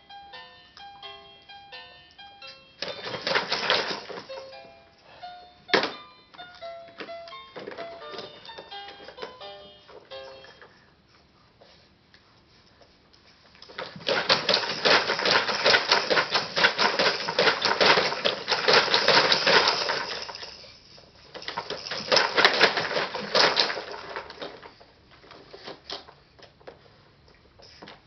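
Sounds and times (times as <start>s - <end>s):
plastic toys rattling: 2.8s - 4.4s, 13.7s - 26.1s.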